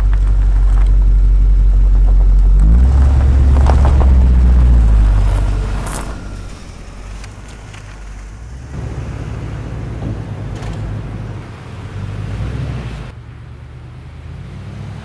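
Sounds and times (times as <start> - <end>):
car engine pulling away: 0.0 - 15.0.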